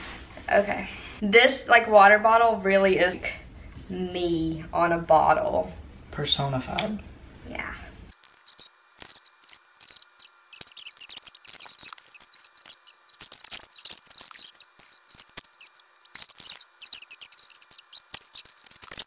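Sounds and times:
sticker paper crackling and rustling: 8.1 - 19.0.

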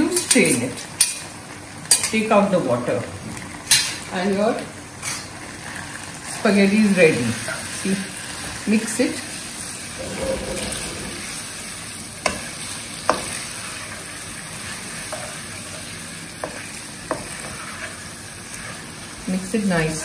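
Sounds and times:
spaghetti sizzling in a wok: 0.0 - 20.0.

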